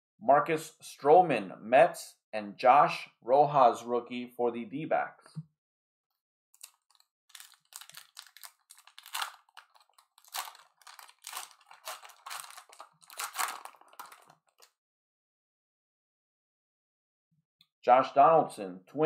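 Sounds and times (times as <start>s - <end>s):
card pack wrapper tearing: 6.6s - 14.7s
wrapper crinkling: 6.6s - 14.7s.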